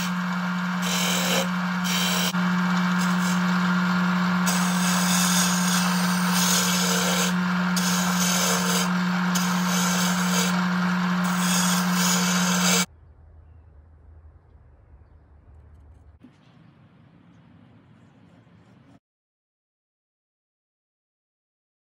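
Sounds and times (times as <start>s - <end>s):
lathe motor hum: 0.0s - 12.9s
turning tool scraping wood: 0.0s - 12.9s.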